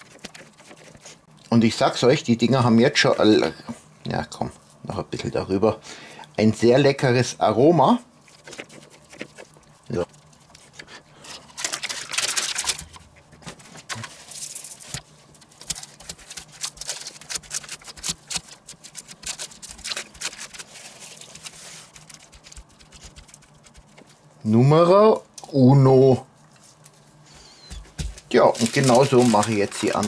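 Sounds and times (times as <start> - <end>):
baking paper rustling and crinkling: 0.0 - 1.3, 8.2 - 24.4, 26.6 - 30.0.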